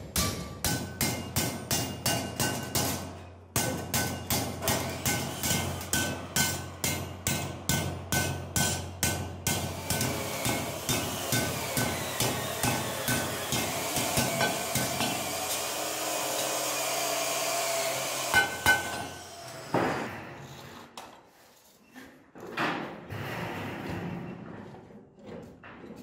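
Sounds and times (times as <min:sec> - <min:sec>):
whirring machine: 0:09.8 - 0:19.8.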